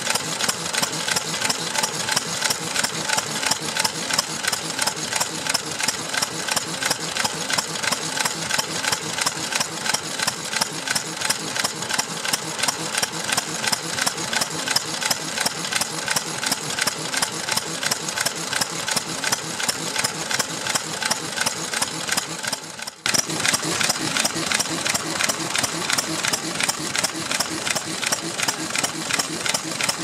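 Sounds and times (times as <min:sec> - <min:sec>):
stationary engine running: 0:00.0 - 0:30.0.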